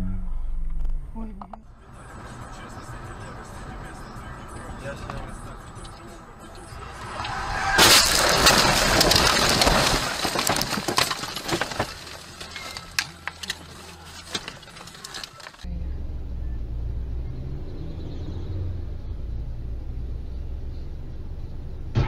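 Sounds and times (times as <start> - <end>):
car driving hum: 0.0 - 22.0
car crash crunching and scraping: 5.0 - 15.7.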